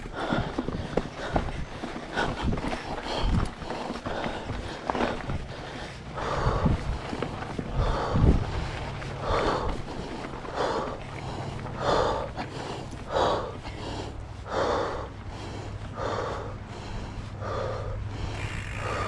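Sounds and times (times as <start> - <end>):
person breathing hard: 0.0 - 19.0.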